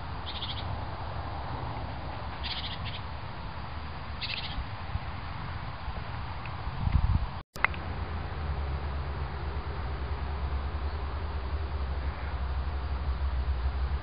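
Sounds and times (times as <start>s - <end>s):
steady low rumble: 0.0s - 14.0s
small bird chirping trills: 0.2s - 0.7s, 2.3s - 3.2s, 4.2s - 4.7s.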